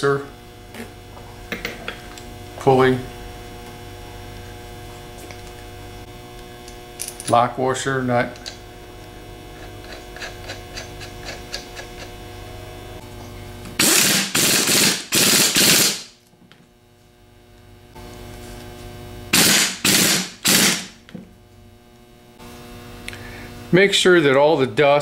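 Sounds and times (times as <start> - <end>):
electrical hum: 0.0 - 25.0
air impact wrench hammering: 13.8 - 16.2, 19.3 - 21.0.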